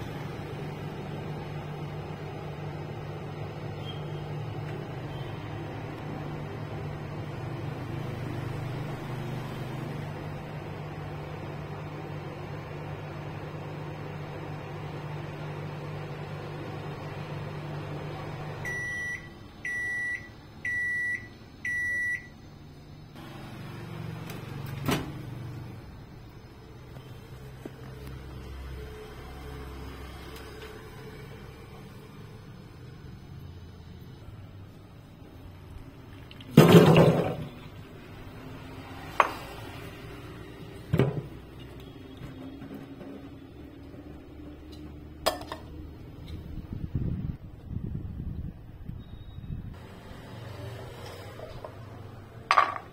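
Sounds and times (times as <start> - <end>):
microwave running hum: 0.0 - 52.9
microwave beeps: 3.6 - 5.8, 18.3 - 22.6, 48.9 - 49.8
nuts and water splashing into strainer: 36.2 - 37.6.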